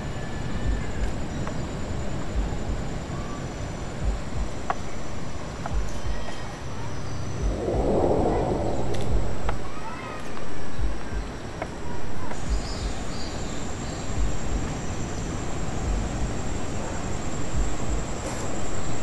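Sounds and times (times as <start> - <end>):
steady background noise: 0.0 - 19.0
thin high hum: 7.1 - 10.9
low thumps: 7.4 - 10.0.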